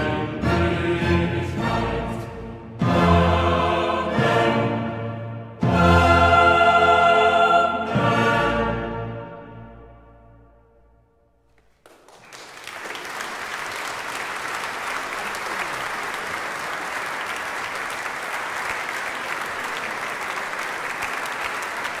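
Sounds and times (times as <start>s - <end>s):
audience applauding: 11.5s - 22.0s.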